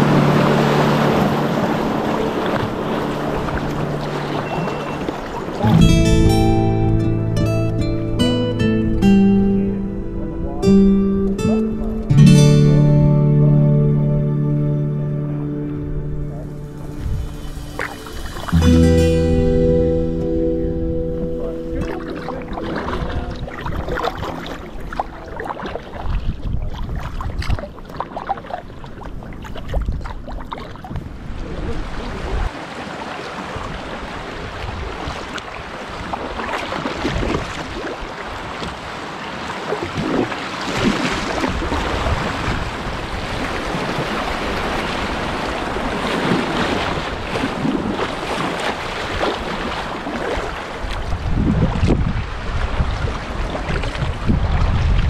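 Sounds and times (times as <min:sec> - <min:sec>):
paddle strokes in water: 0:00.0 - 0:06.0, 0:16.2 - 0:19.4, 0:21.2 - 0:55.0
wind buffeting microphone: 0:00.0 - 0:12.9, 0:15.7 - 0:18.7, 0:20.8 - 0:32.6, 0:33.4 - 0:39.0, 0:39.6 - 0:55.0
river water rushing and splashing: 0:00.0 - 0:55.0.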